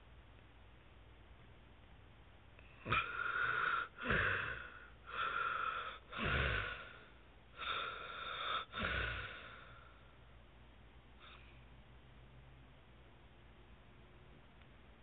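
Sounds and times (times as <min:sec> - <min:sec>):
man snoring: 0:02.8 - 0:07.0, 0:07.6 - 0:09.7.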